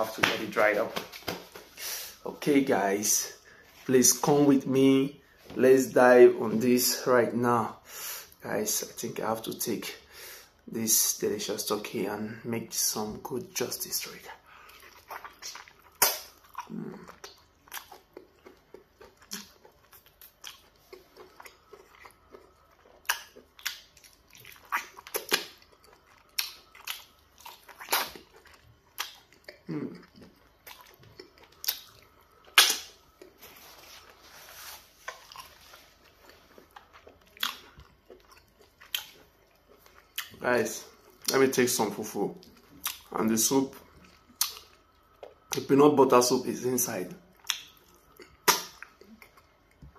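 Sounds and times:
person biting and chewing: 14.6s - 40.4s, 47.4s - 49.9s.

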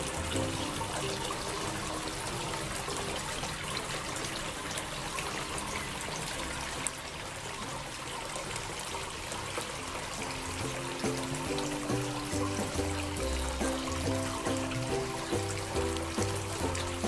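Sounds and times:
running water: 0.0s - 17.0s.

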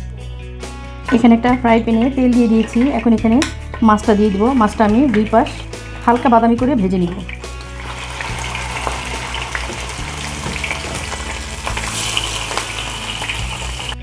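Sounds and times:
fish sizzling in hot oil: 7.0s - 14.0s.

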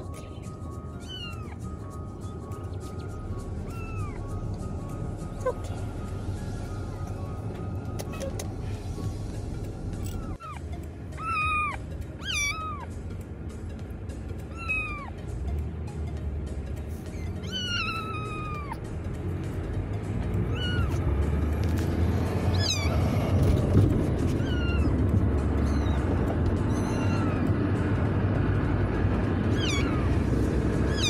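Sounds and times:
low car rumble: 0.0s - 31.0s
kitten meowing: 1.0s - 1.7s, 3.6s - 4.4s, 7.6s - 8.6s, 10.0s - 12.9s, 14.4s - 15.2s, 17.0s - 18.8s, 20.4s - 21.1s, 22.4s - 23.3s, 24.2s - 27.6s, 29.5s - 30.3s.

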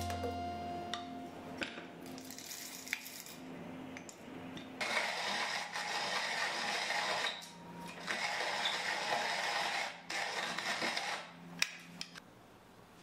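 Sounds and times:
coffee mill grinding: 4.8s - 7.3s, 8.0s - 11.3s.

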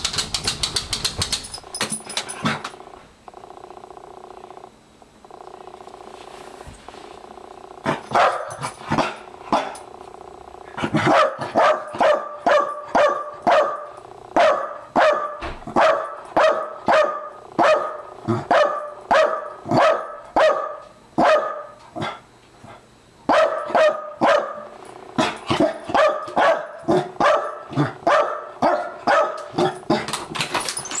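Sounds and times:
dog barking excitedly: 7.8s - 9.8s, 10.8s - 22.2s, 23.3s - 30.2s.

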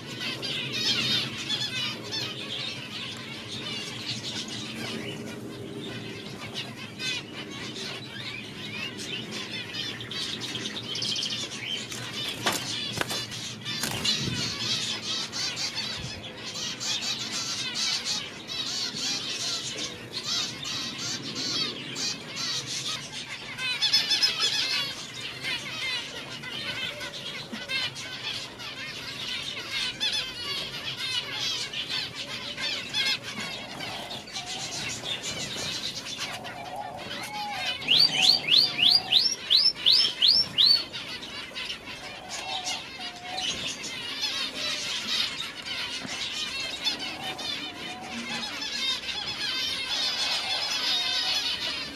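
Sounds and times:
finches chattering: 0.0s - 51.9s
loud rising bird chirps: 31.8s - 41.0s.

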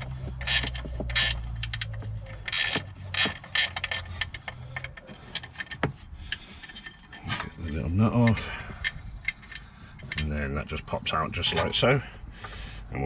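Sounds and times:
ratchet spanner clicking: 0.0s - 10.3s.

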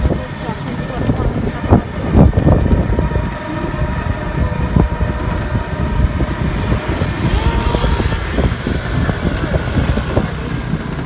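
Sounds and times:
vehicle rumble: 0.0s - 11.0s
air rushing past: 5.0s - 11.0s.

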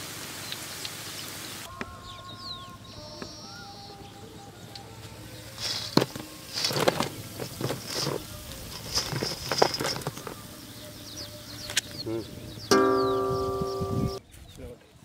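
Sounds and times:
fried snacks crunchy clattering: 5.6s - 10.4s.

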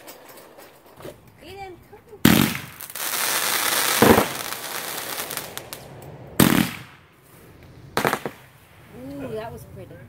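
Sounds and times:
firework bangs: 2.2s - 7.2s, 7.8s - 9.0s
firework crackle and hiss: 2.2s - 10.0s.

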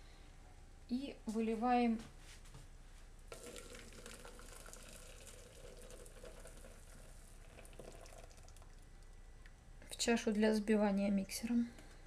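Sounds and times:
syrup trickling into bowl: 3.3s - 9.0s.

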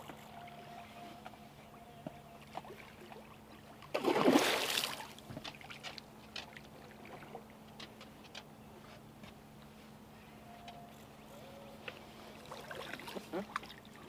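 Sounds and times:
fish splashing at the surface: 3.9s - 5.2s.

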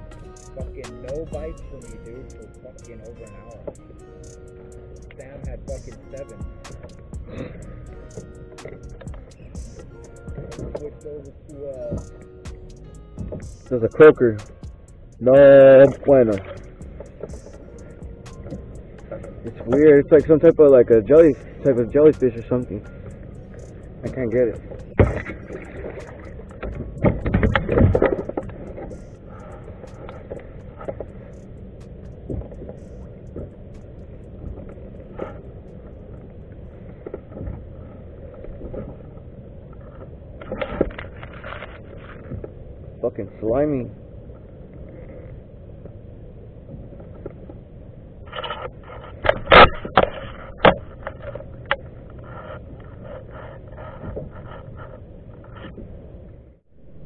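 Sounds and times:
water and wind wash: 0.0s - 57.0s
paddle knocking kayak hull: 10.1s - 11.3s, 11.9s - 14.4s, 24.0s - 35.4s.

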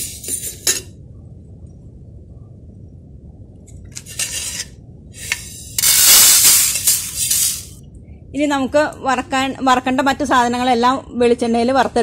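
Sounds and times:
pan scraping and rattling: 4.0s - 7.7s.

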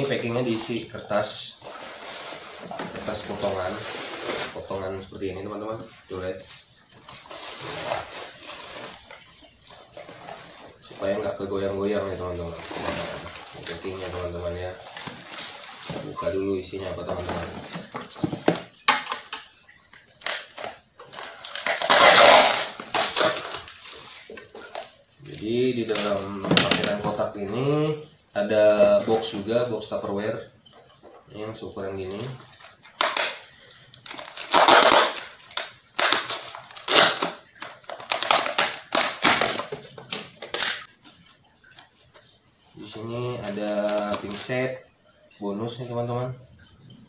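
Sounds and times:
paper packing fill rustling: 0.0s - 6.4s
shredded paper rustling: 0.0s - 6.5s, 7.1s - 9.3s, 10.0s - 18.3s
plastic box handled: 12.6s - 19.3s.

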